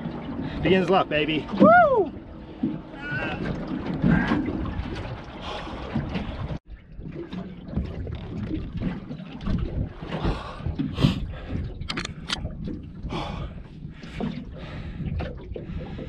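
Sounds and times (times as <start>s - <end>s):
water slapping against a hull: 0.0s - 16.0s
wind buffeting microphone: 1.4s - 16.0s.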